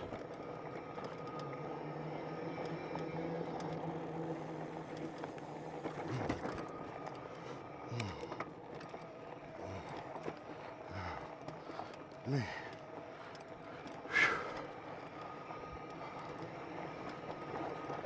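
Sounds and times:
electric motor whine: 0.0 - 11.2
tyre and riding noise: 0.0 - 18.0.

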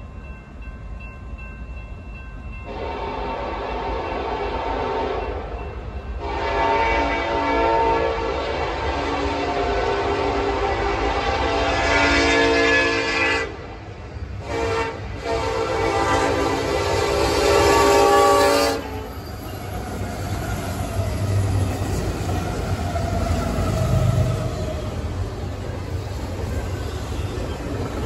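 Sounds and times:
wheels rumbling and clacking on rail: 0.0 - 28.0
locomotive air horn blasts: 2.7 - 5.4, 6.2 - 13.6, 14.4 - 19.1
diesel locomotive engines running: 3.7 - 28.0.

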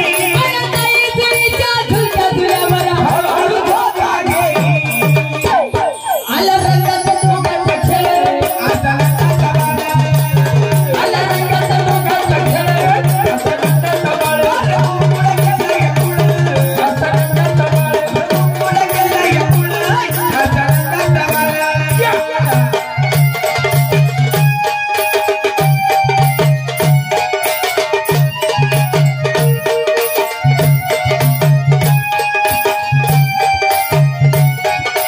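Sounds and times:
folk melody line: 0.0 - 35.0
rattling percussion: 0.0 - 35.0.

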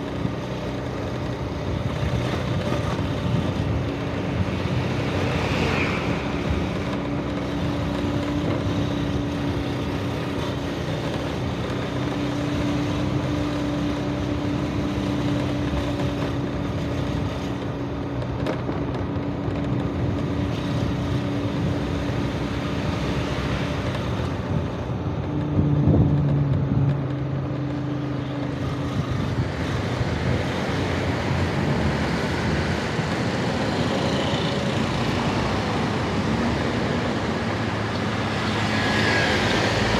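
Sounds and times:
city traffic engine noise: 0.0 - 39.9
wind on microphone: 0.2 - 17.7, 18.3 - 39.9.

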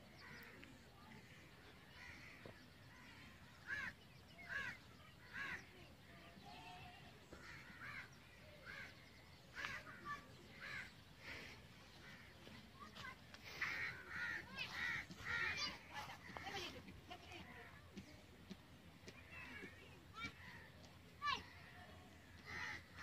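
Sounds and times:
crows cawing: 1.9 - 5.6, 7.3 - 16.7, 20.2 - 23.0.

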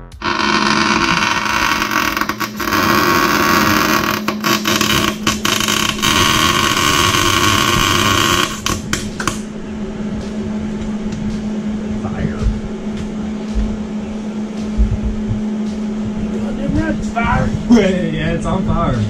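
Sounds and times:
arc welder hissing: 0.0 - 9.4
steady low hum: 0.0 - 19.0.

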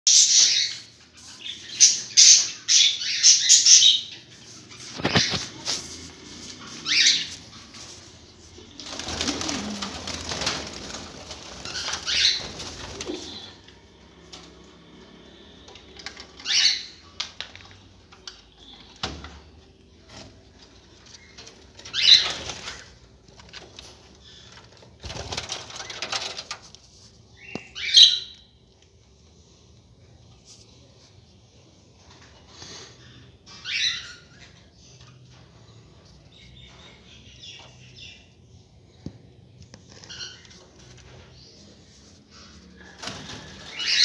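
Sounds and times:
wings fluttering: 4.8 - 13.6, 21.5 - 26.9, 42.8 - 44.0
budgerigars chirping: 11.8 - 12.5.

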